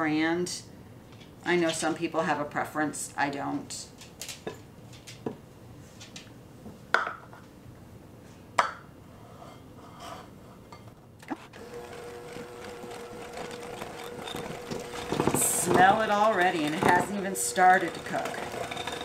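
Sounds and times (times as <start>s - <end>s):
electric hand mixer humming: 11.3s - 19.0s.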